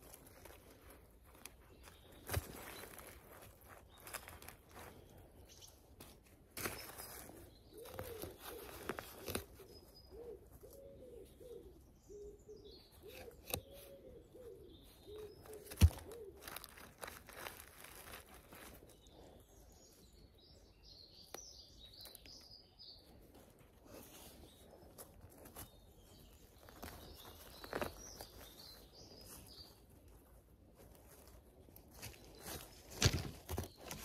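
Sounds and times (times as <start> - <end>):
bird chirps: 6.6 - 30.2
bird cooing: 7.6 - 16.8.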